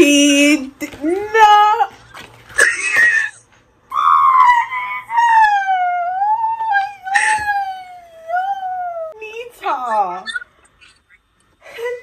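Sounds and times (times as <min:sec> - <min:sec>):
woman squealing: 0:02.6 - 0:09.2, 0:09.9 - 0:10.5.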